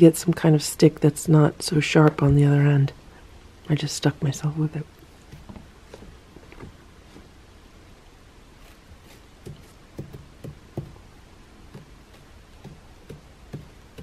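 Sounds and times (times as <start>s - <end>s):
stick and paws knocking on cat bed: 9.4s - 11.0s, 11.7s - 14.0s.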